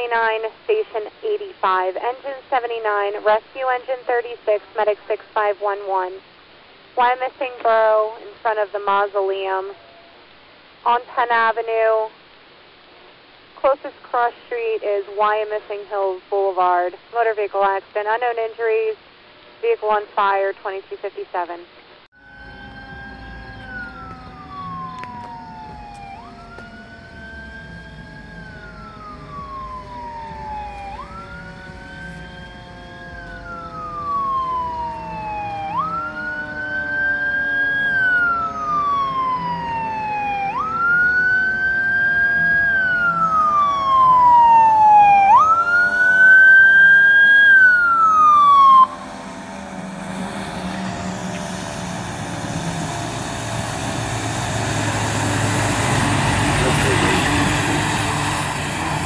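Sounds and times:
fire engine siren wailing: 22.1s - 59.0s
low siren tone sliding down: 22.1s - 59.0s
truck approaching: 22.1s - 59.0s.

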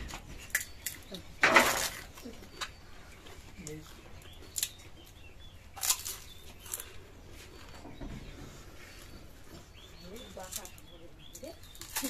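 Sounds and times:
faint bird chirps: 0.3s - 12.0s
crisp shells being chewed: 0.4s - 1.2s, 3.2s - 7.2s.

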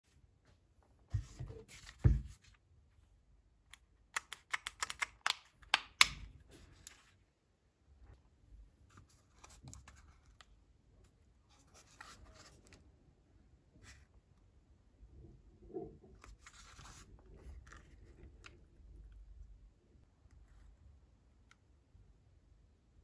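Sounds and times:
plastic clicks and rattles: 3.7s - 6.2s.

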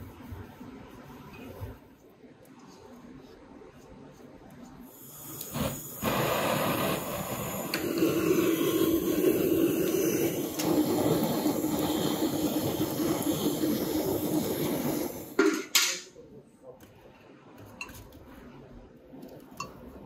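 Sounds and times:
gas torch hissing: 4.8s - 16.0s.

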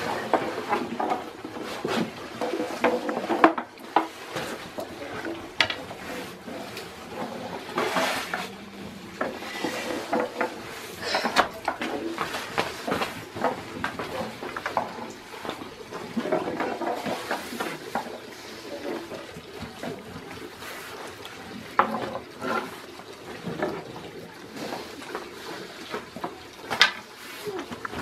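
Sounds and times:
wooden knocks and clacks: 0.0s - 18.2s, 25.9s - 27.1s.

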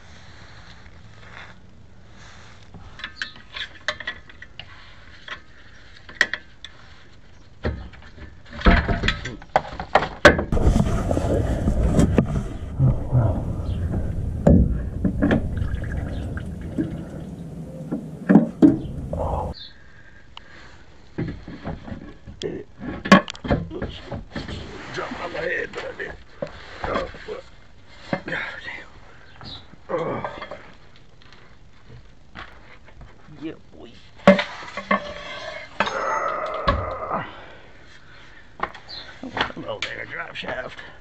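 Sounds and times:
scraping and rustling: 9.6s - 19.6s
sharp knocks: 12.0s - 19.5s.

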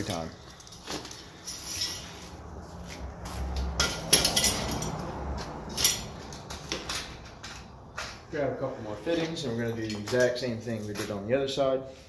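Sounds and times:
metal cable clinks and rattles: 0.0s - 2.4s, 3.6s - 8.2s, 9.1s - 11.0s.

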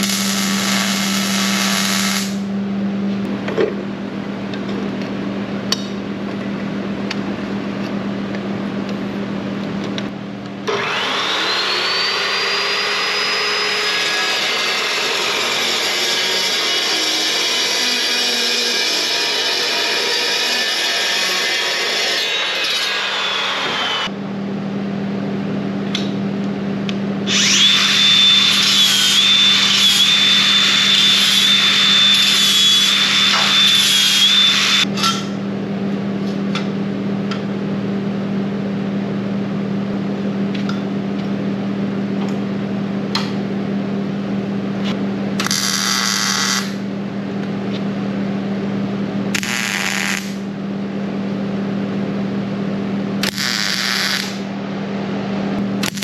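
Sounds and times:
arc welding bursts: 0.0s - 2.4s, 45.4s - 46.8s, 49.4s - 50.4s, 53.2s - 54.5s, 55.8s - 56.0s
chop saw cutting steel: 10.7s - 24.1s, 27.3s - 34.8s.

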